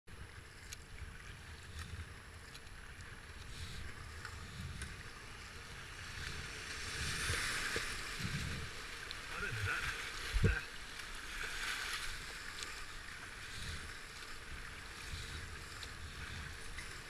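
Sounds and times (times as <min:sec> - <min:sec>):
wind rumbling on microphone: 0:00.1 - 0:10.8, 0:12.0 - 0:17.0
kayak paddle splashes: 0:00.1 - 0:17.0
river rapids rushing: 0:09.2 - 0:10.8.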